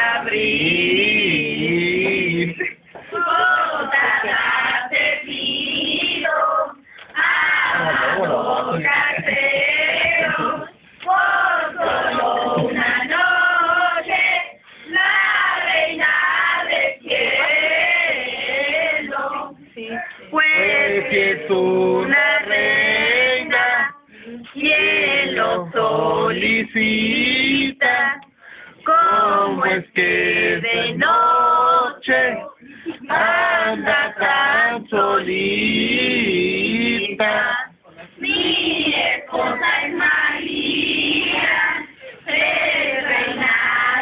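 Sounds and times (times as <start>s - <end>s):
group of people singing: 0.0s - 44.0s.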